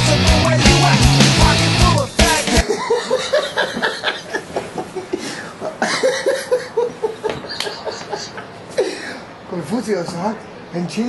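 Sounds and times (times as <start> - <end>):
man laughing: 2.5 - 8.9.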